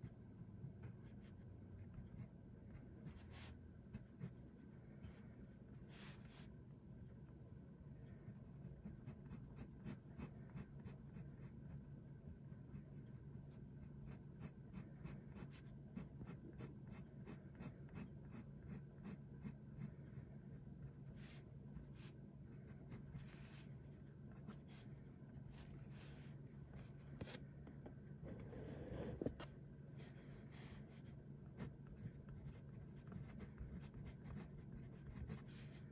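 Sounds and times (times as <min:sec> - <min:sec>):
pen nib scratching on paper: 0:08.0 - 0:24.9, 0:30.6 - 0:35.9.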